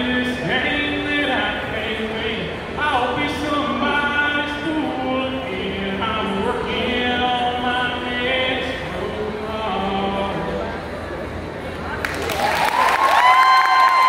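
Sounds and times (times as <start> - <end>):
man singing into microphone: 0.0 - 10.9.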